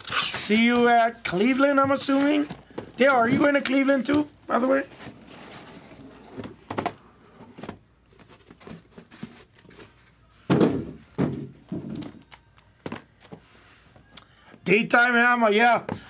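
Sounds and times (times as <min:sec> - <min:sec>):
objects being handled thunking: 0:01.7 - 0:04.2, 0:06.2 - 0:07.9, 0:10.5 - 0:12.2.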